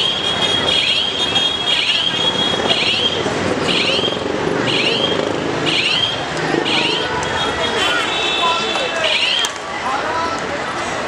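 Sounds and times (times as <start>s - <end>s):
crowd din: 0.0s - 11.0s.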